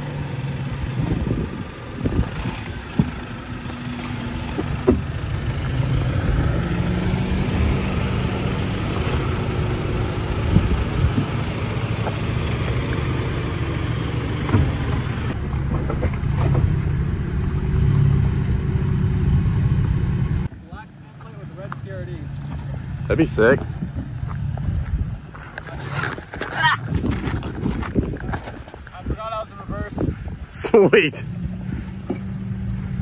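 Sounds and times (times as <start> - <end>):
truck engine running at low revs: 0.0 - 20.6.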